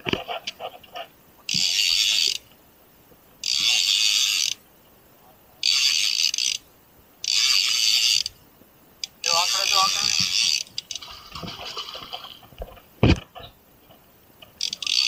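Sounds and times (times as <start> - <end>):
fishing reel ratcheting: 1.5 - 2.4, 3.4 - 4.6, 5.6 - 6.6, 7.2 - 8.4, 9.0 - 11.1, 14.6 - 15.0.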